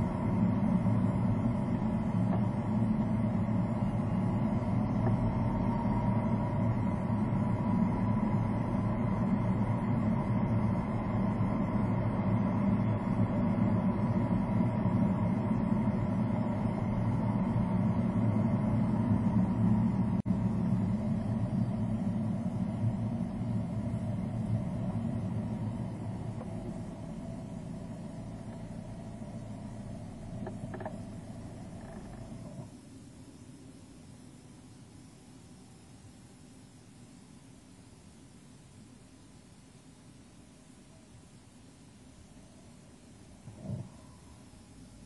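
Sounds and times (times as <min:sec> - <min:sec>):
car engine and tyre rumble: 0:00.0 - 0:33.0, 0:43.3 - 0:45.0.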